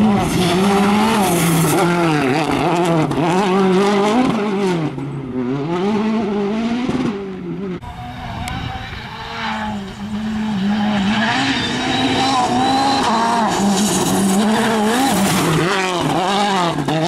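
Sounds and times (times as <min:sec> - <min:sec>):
rally car engine revving: 0:00.0 - 0:17.0
gravel spraying from tyres: 0:10.9 - 0:15.9.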